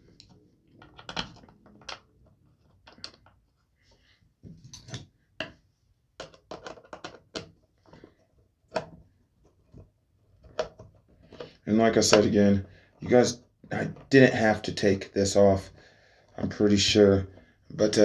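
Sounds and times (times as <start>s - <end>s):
plastic parts clicking: 0.2s - 3.4s, 6.2s - 8.0s.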